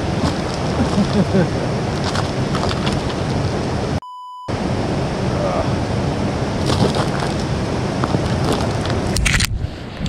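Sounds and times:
censor beep: 4.0s - 4.5s
wind noise on microphone: 5.8s - 10.0s.

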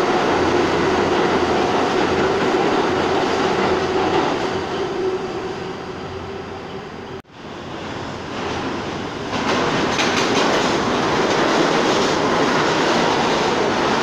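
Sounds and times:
subway train rumbling: 0.0s - 14.0s
wheel clatter over rail joints: 8.4s - 14.0s.

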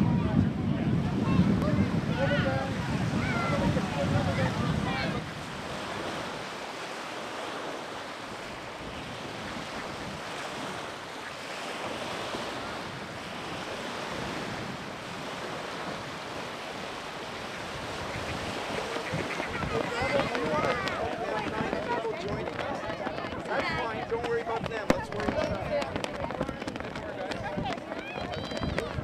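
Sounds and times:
wind rushing: 0.0s - 6.6s.

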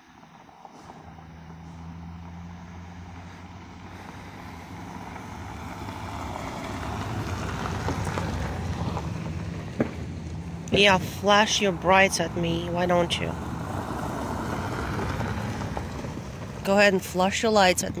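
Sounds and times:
vehicle driving closer: 0.0s - 18.0s.

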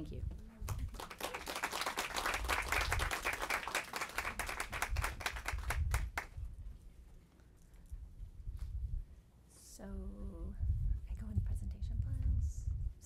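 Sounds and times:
audience applauding: 0.7s - 6.3s.

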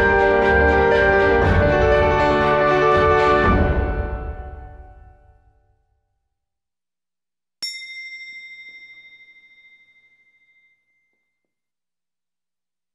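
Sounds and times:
soundtrack music: 0.0s - 5.4s
bright bell ding: 7.6s - 11.4s.

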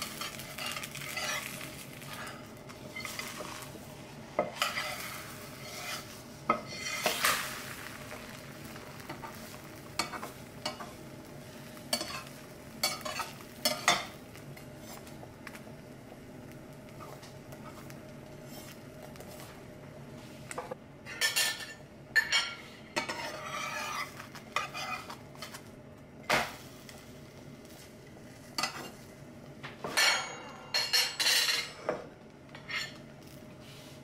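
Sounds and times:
metal spatula scraping a pan: 0.0s - 3.7s, 4.4s - 7.7s, 11.9s - 14.2s, 18.5s - 18.8s, 21.1s - 25.6s.

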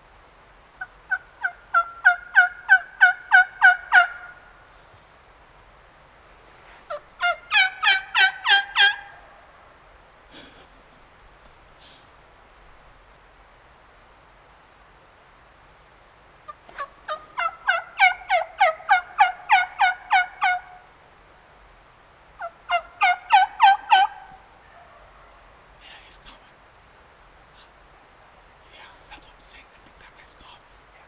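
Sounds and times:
turkey yelping: 0.8s - 4.4s, 6.9s - 9.3s, 16.5s - 20.8s, 22.4s - 25.2s.

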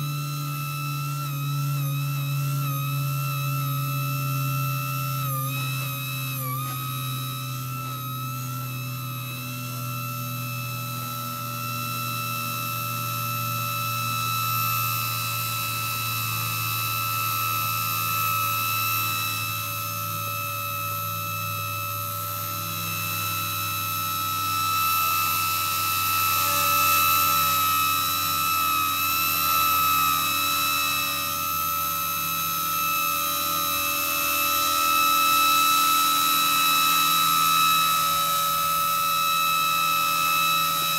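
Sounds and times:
rc helicopter motor whine: 0.0s - 40.9s.

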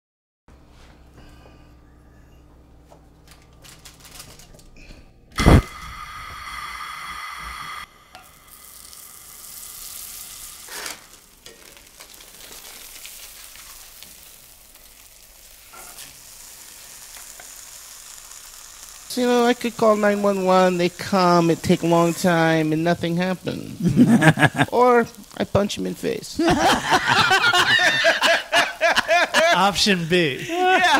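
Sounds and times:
butter sizzling in a skillet: 5.4s - 29.7s.

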